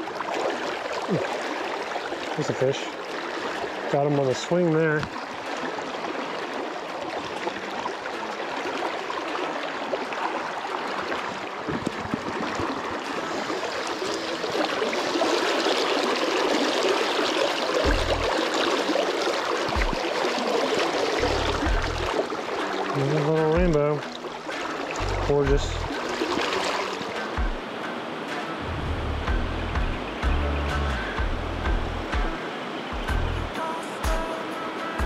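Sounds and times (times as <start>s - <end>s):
shallow creek flowing: 0.0s - 35.0s
dull low thumps: 17.9s - 18.3s, 21.2s - 22.1s, 25.0s - 25.9s, 28.6s - 32.4s, 33.0s - 33.6s.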